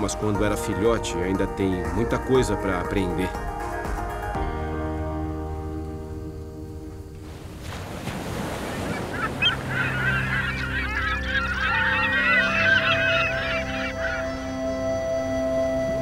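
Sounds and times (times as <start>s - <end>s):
seabirds calling: 7.6s - 16.0s.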